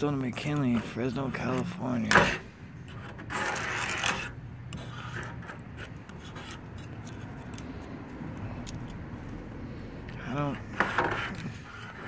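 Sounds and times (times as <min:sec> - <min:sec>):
razor blade scraping paint: 0:00.2 - 0:08.0, 0:10.7 - 0:12.0.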